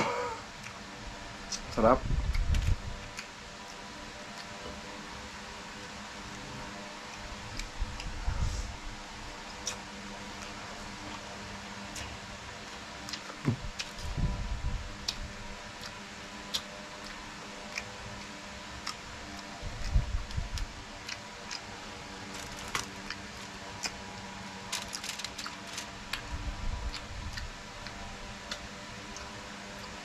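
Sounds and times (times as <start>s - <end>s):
steady low hum: 0.0s - 30.0s
wet eating clicks and smacks: 2.3s - 4.6s, 7.0s - 8.1s, 9.4s - 11.3s, 11.9s - 14.1s, 15.0s - 24.1s, 24.7s - 30.0s.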